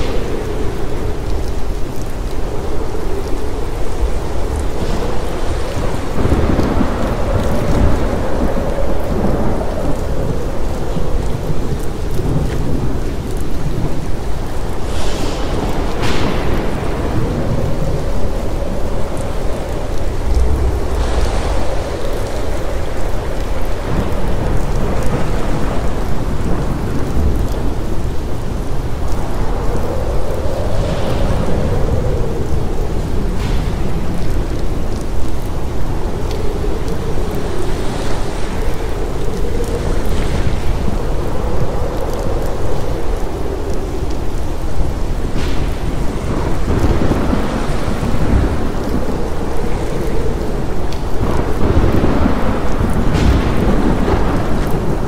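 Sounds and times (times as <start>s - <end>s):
heavy rain: 0.0s - 55.0s
low thunder rumble: 0.0s - 55.0s.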